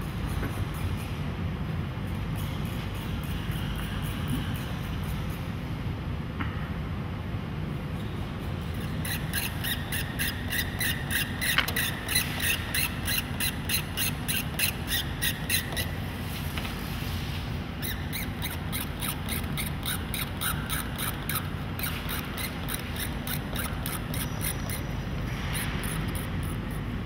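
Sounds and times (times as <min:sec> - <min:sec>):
tool scratching canvas: 0:08.5 - 0:27.0.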